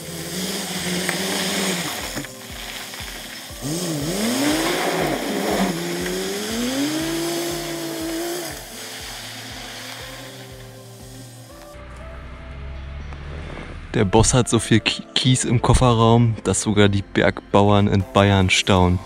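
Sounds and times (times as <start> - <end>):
diesel truck engine revving: 0.0 - 14.5.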